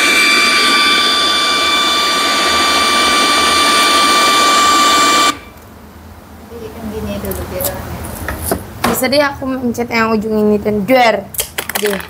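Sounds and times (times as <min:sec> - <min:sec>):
high electronic whine: 0:00.0 - 0:05.6.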